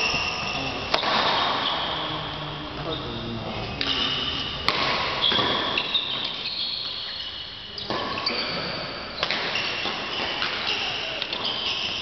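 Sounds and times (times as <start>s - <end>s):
shoes squeaking on court floor: 0.0s - 2.2s, 2.8s - 12.0s
racket hitting shuttlecock: 0.9s - 1.4s, 4.6s - 6.4s, 9.2s - 12.0s.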